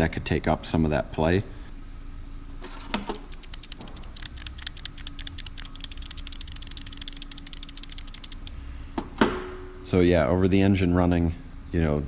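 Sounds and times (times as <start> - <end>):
pulley rattling and clicking: 3.3 - 8.5.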